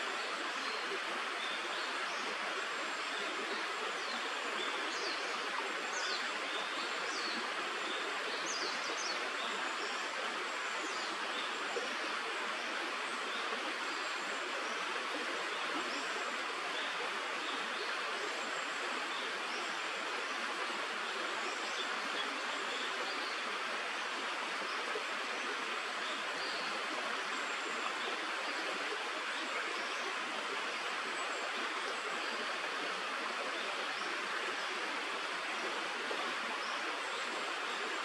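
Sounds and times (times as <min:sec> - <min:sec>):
stream water rushing: 0:00.0 - 0:38.0.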